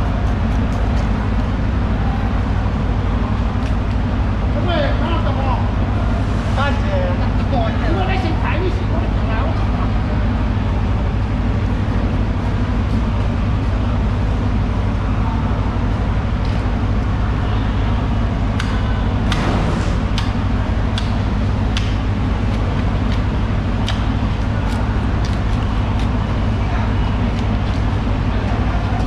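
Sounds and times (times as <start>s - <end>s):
low motor drone: 0.0s - 29.0s
sharp clicks and knocks: 18.6s - 23.2s.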